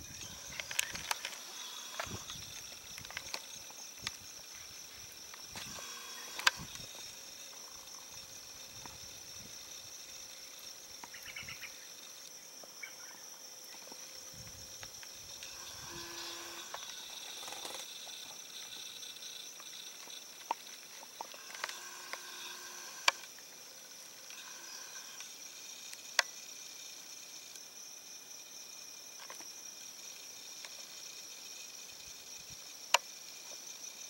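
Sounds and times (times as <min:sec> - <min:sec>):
insects buzzing trills: 0:00.0 - 0:34.0
sharp clicks: 0:05.4 - 0:06.9, 0:21.2 - 0:23.3.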